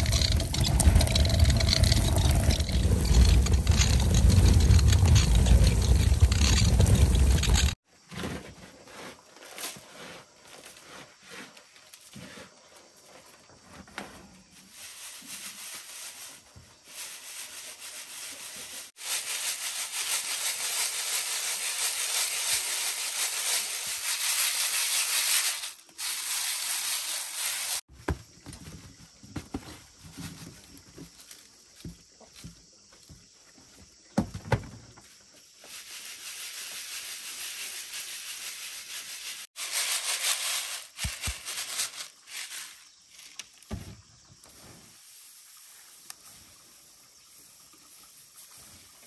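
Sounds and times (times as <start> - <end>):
grain rustling in bamboo baskets: 0.0 - 7.8, 14.4 - 27.9, 35.4 - 43.7, 44.4 - 49.0
grain showering through a sieve: 0.0 - 7.8, 14.6 - 27.9, 35.6 - 43.2, 44.5 - 49.0.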